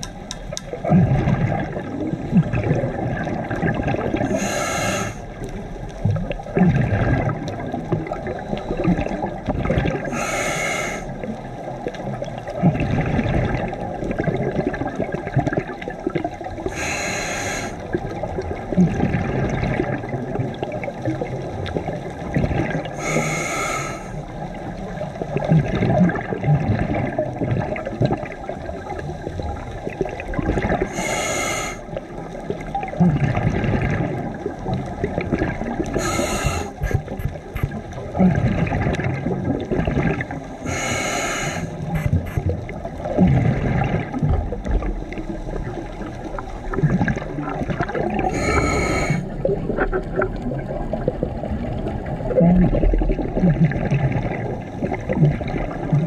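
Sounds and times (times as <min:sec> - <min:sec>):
bubbling exhale: 0:00.8 - 0:05.4, 0:06.6 - 0:11.3, 0:12.6 - 0:20.8, 0:21.8 - 0:24.3, 0:25.4 - 0:32.0, 0:32.9 - 0:44.6, 0:45.2 - 0:56.0
regulator hissing inhalations: 0:04.3 - 0:05.3, 0:10.1 - 0:11.1, 0:16.7 - 0:17.8, 0:23.0 - 0:24.2, 0:30.9 - 0:31.8, 0:36.0 - 0:37.4, 0:40.7 - 0:42.4, 0:48.3 - 0:49.3.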